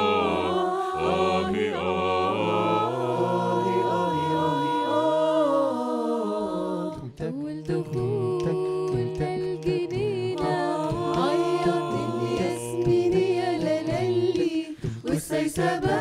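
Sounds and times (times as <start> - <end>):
a cappella group singing: 0.0 - 16.0
woman singing melody: 6.9 - 16.0.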